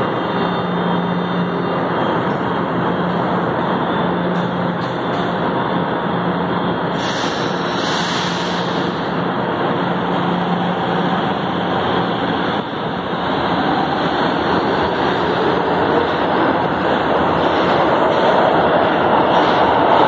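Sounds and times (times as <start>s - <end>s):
metro train humming: 0.0s - 20.0s
train accelerating: 0.0s - 20.0s
train brake hiss: 6.9s - 9.1s.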